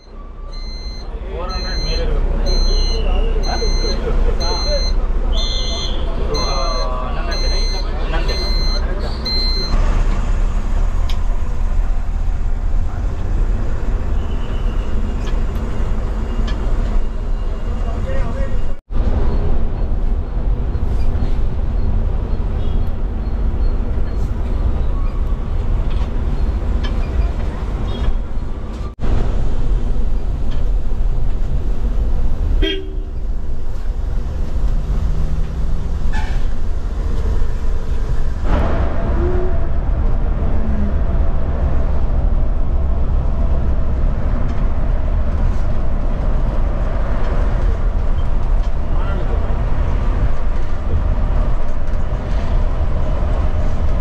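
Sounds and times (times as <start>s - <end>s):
bus low rumble: 0.0s - 54.0s
vehicle horn honking: 5.3s - 6.7s, 32.6s - 33.1s.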